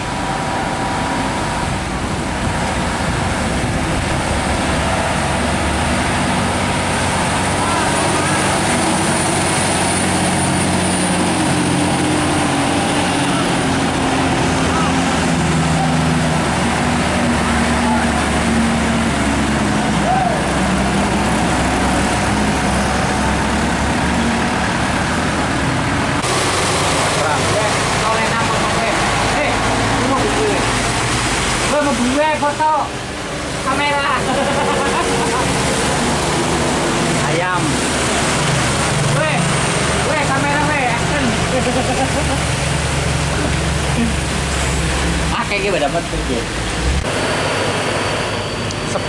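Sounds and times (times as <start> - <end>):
road noise: 0.0 - 49.0
truck diesel engine drone: 0.0 - 49.0
tyre and traffic noise: 0.0 - 49.0.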